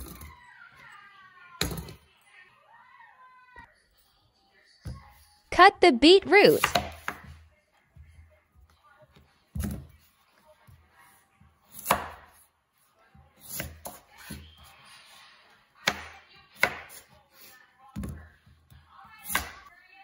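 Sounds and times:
knife chopping on wooden board: 11.7 - 12.4, 15.8 - 17.0.

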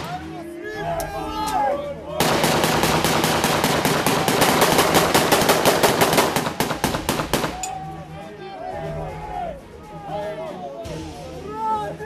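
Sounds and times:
automatic gunfire: 2.2 - 7.6.

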